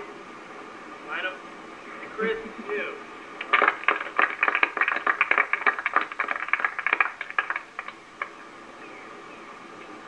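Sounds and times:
group hand clapping: 3.4s - 8.4s.

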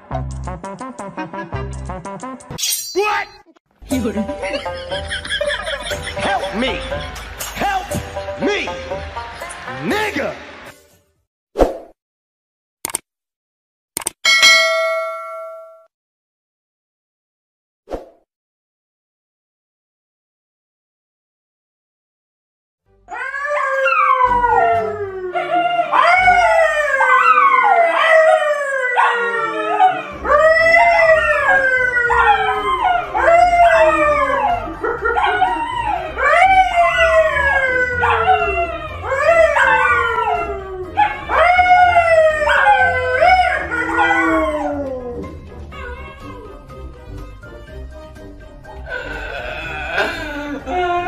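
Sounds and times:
man howling: 23.1s - 46.6s, 48.9s - 51.0s
dogs howling: 23.1s - 46.7s.

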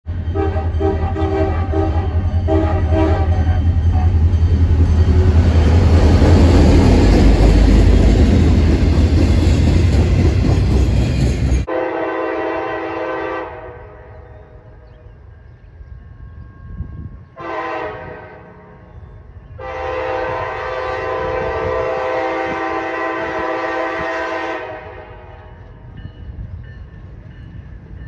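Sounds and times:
locomotive horn blasts: 0.3s - 4.3s, 11.7s - 14.2s, 17.4s - 18.8s, 19.6s - 25.5s
freight cars rumbling past: 2.0s - 11.7s.

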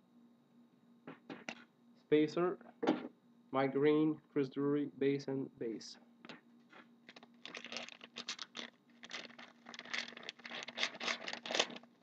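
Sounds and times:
trading cards rustling: 7.1s - 12.0s.

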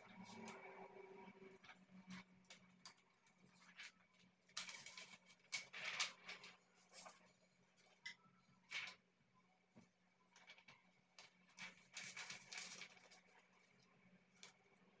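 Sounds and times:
plastic film pouch rustling: 10.4s - 13.3s.

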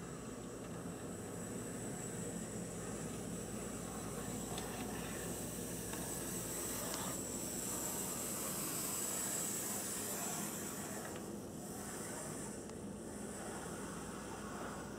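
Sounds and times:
model train motor whirring: 4.6s - 12.7s.

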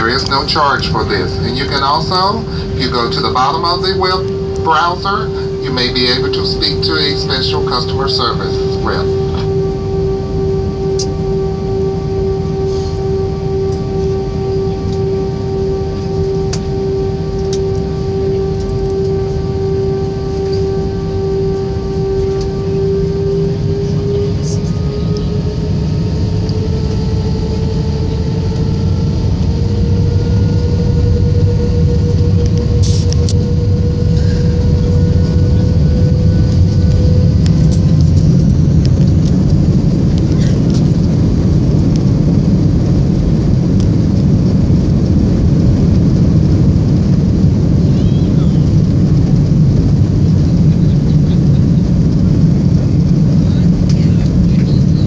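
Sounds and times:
faint rising tone: 0.0s - 40.1s
jet engine cabin rumble: 0.0s - 55.0s.

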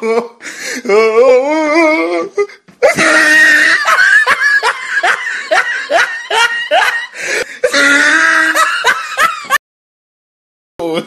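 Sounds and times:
person laughing heartily: 2.3s - 9.6s.

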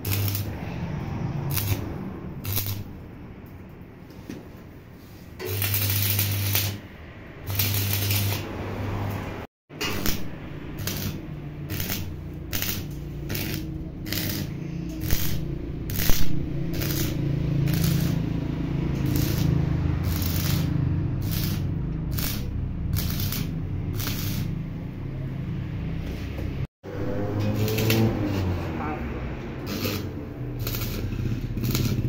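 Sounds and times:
welding arc crackling and popping: 0.0s - 0.6s, 1.5s - 3.1s, 5.4s - 8.5s, 9.8s - 24.6s, 27.3s - 28.6s, 29.6s - 32.0s.

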